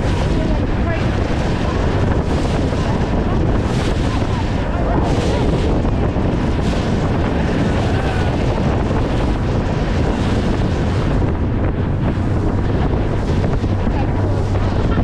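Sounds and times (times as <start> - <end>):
boat engine drone: 0.0 - 15.0
water rushing along hull: 0.0 - 15.0
wind buffeting microphone: 0.0 - 15.0.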